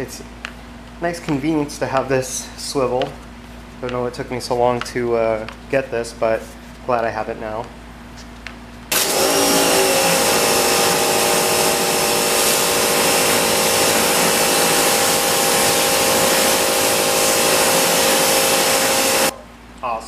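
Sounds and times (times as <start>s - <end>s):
water jet hissing on a wheel: 8.9s - 19.3s
pressure washer motor whine: 8.9s - 19.4s.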